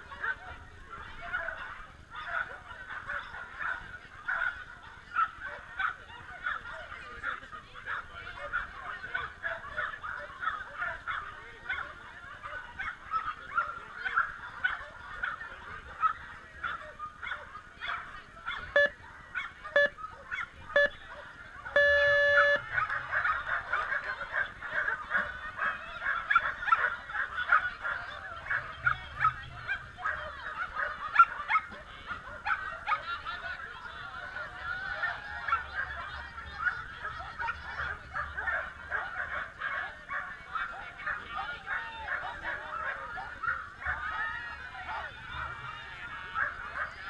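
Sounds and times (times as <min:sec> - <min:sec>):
dogs barking excitedly: 0:00.0 - 0:47.0
electronic start beeps: 0:21.8 - 0:22.6.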